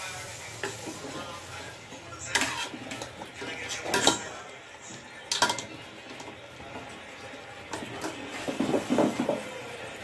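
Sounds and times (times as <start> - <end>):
metal spoon stirring in pot: 0.5 - 9.4.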